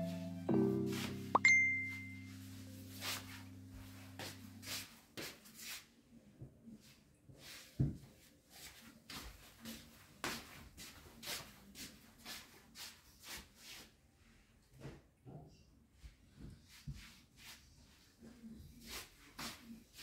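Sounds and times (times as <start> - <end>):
soft background music: 0.0 - 5.7
high ding: 1.3 - 2.4.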